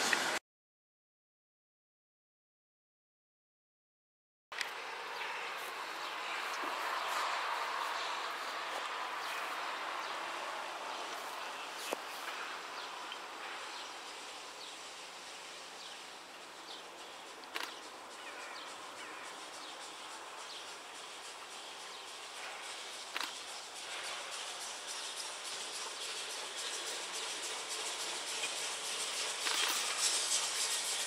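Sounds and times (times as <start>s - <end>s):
car passing: 4.6s - 13.6s
sharp clicks: 17.4s - 17.8s.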